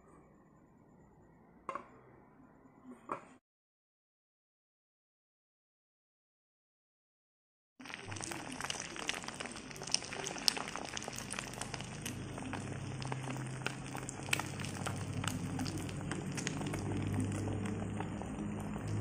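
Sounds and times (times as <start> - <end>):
egg sizzling in frying pan: 7.8 - 19.0
low steady hum: 11.4 - 19.0.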